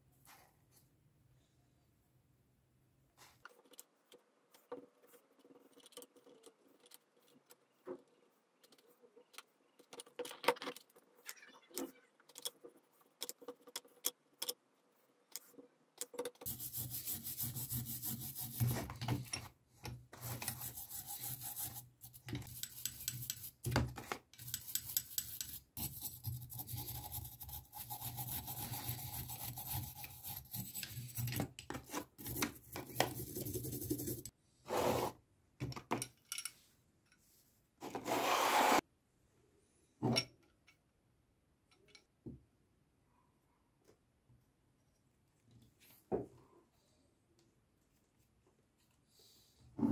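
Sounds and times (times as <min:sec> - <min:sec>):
paintbrush tapping metal: 0:22.4 - 0:23.8, 0:24.4 - 0:26.7.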